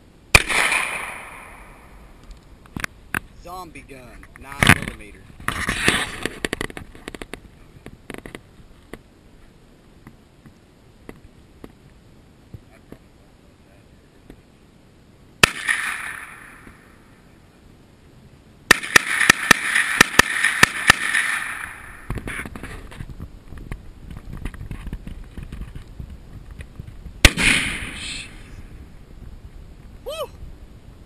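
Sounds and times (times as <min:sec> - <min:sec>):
carbine gunshots: 0:00.3 - 0:02.0, 0:15.4 - 0:16.9, 0:18.7 - 0:22.5, 0:27.2 - 0:28.4
loud rifle shot: 0:00.3 - 0:02.0, 0:15.4 - 0:17.0, 0:18.7 - 0:22.5, 0:27.2 - 0:28.5.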